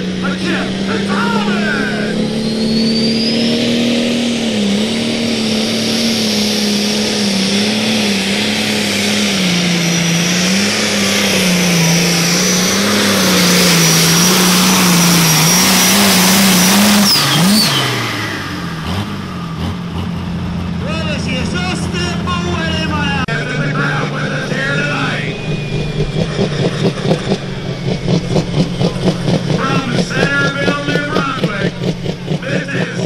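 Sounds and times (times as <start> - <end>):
tractor diesel engine at full throttle: 0.0 - 33.0
high steady whistle: 2.5 - 3.8.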